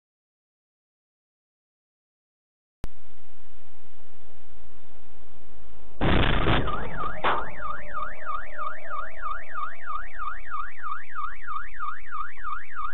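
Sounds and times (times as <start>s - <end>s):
loud crash: 6.0s - 9.3s
sharp bang: 6.0s - 9.4s
car alarm wailing: 6.0s - 12.9s.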